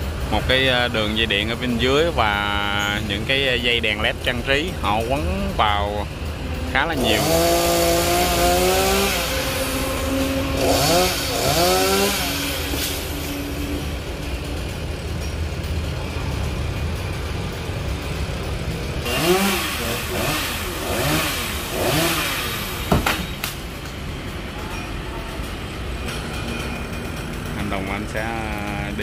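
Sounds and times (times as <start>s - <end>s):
chainsaw engine revving: 0.0s - 24.0s, 26.0s - 29.0s
sharp crack: 22.1s - 24.0s.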